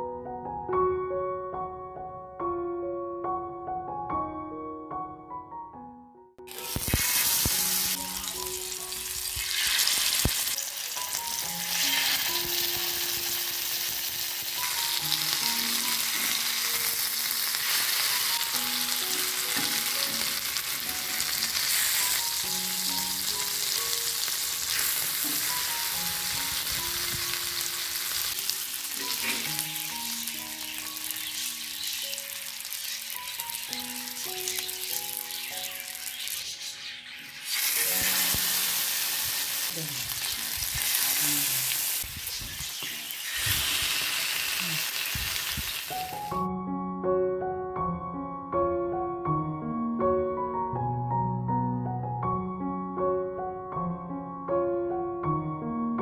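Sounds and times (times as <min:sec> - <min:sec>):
soft piano music: 0:00.0 - 0:42.4, 0:43.1 - 0:56.0
fish sizzling in oil: 0:06.4 - 0:46.5.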